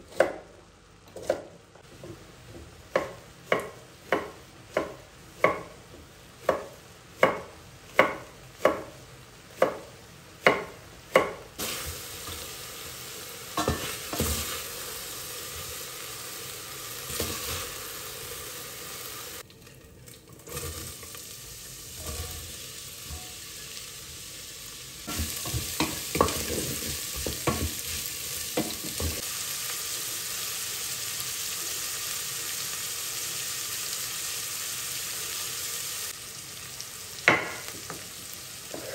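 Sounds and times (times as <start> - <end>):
oil and spices sizzling: 0.0 - 38.9
knife chopping on a cutting board: 0.1 - 0.5, 1.1 - 1.5, 2.9 - 5.8, 6.4 - 9.0, 9.6 - 11.4.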